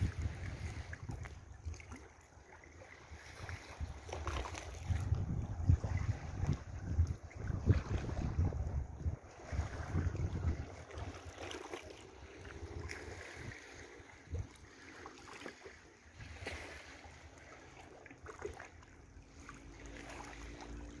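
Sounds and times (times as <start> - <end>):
wind buffeting microphone: 0.0 - 1.9, 3.0 - 14.8
light water splashes: 0.0 - 21.0
small waves lapping: 0.0 - 21.0.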